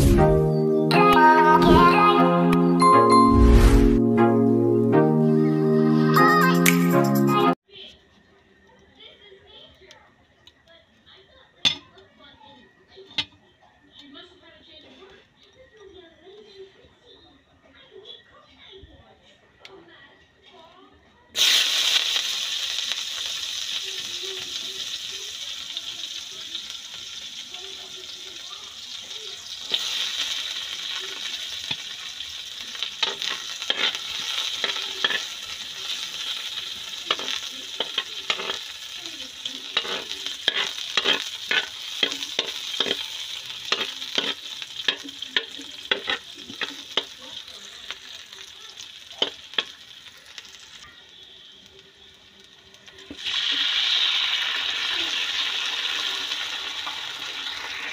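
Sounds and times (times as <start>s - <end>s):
garlic and onion sizzling in oil: 7.5s - 16.8s, 21.3s - 57.9s
stirring clicks and scrapes in pan: 24.4s - 53.3s.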